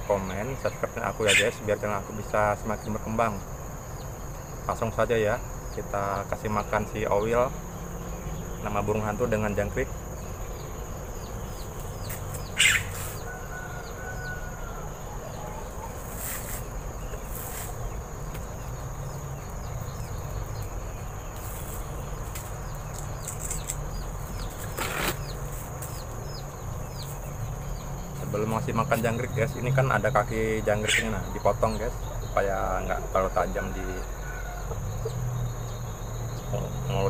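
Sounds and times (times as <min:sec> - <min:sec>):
crickets chirring: 0:00.0 - 0:37.0
owl feathers rustling: 0:11.8 - 0:14.4, 0:16.0 - 0:17.8.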